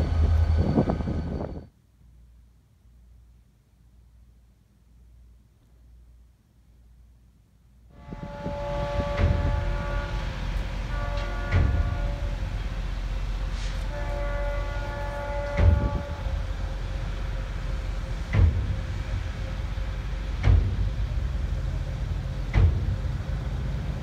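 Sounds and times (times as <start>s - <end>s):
low train rumble: 0.0s - 24.0s
locomotive air horn blasts: 7.9s - 12.8s, 13.4s - 16.9s.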